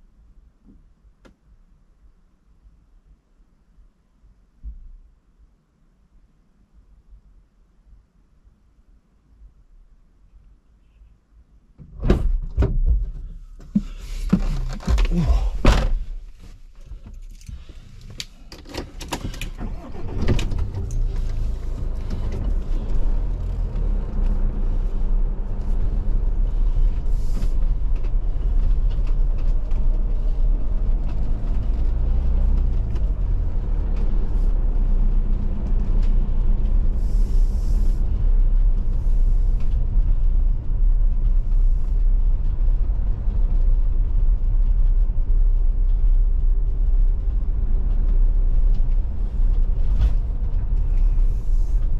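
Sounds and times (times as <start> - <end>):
diesel engine rumbling: 12.8 - 51.9.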